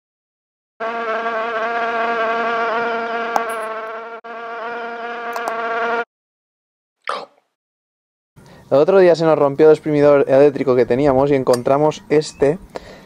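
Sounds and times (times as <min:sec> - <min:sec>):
fly buzzing: 0:00.8 - 0:06.1.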